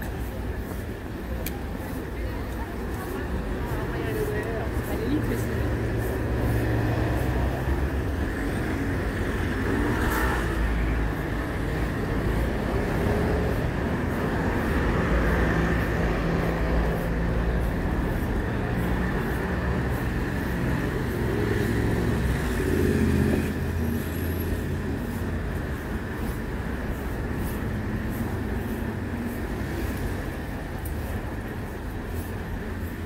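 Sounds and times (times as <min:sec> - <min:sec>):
city street traffic: 0:00.0 - 0:33.0.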